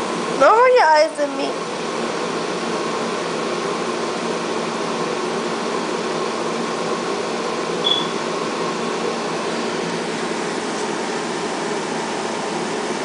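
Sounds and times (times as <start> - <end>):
steady mechanical whir: 0.0 - 13.0
brief high squeak: 7.8 - 8.2.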